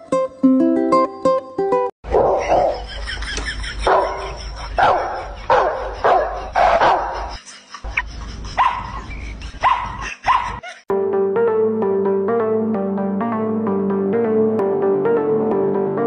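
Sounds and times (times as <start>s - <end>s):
small dog barking: 2.1s - 2.7s, 4.8s - 7.2s, 9.6s - 10.6s.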